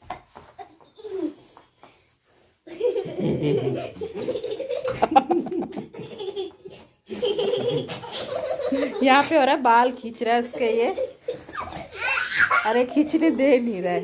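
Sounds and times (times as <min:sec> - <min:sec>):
children laughing: 0:00.5 - 0:01.6, 0:02.7 - 0:09.4, 0:10.5 - 0:13.4.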